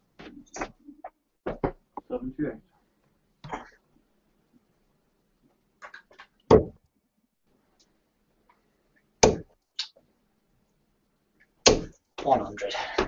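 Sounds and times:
darts striking a dartboard: 9.2 - 9.5.

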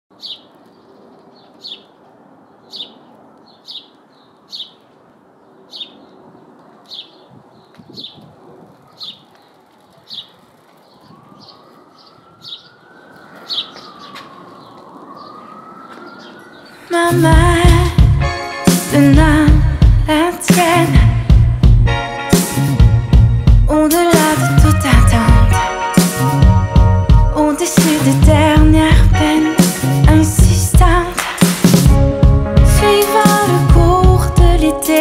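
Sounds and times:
bird chirping: 0.1 - 8.2, 8.9 - 16.9
city background hum: 0.1 - 35.0
faint siren wailing: 10.4 - 17.9.

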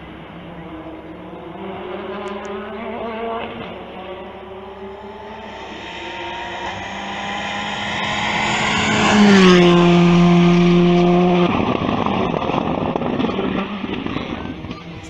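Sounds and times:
rally car passing at speed: 0.1 - 15.0
rough noise: 3.4 - 15.0.

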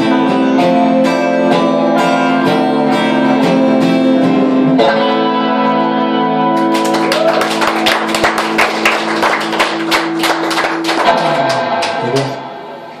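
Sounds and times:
guitar chord ringing: 0.0 - 13.0
audience clapping: 6.5 - 12.4.

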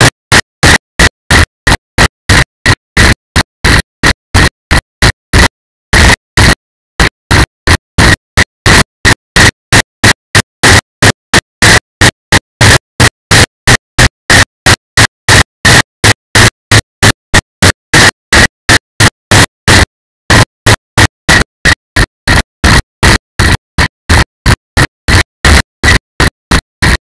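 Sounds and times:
harsh glitching noise bursts: 0.0 - 27.0.

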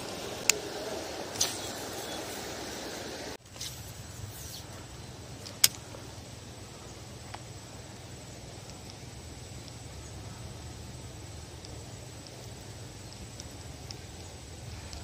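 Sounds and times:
low steady hum: 0.0 - 15.0
sharp click: 5.4 - 5.8.

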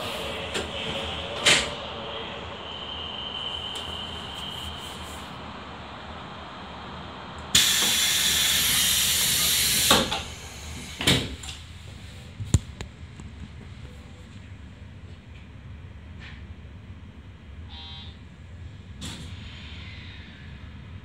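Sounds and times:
hiss of air: 7.5 - 11.1.

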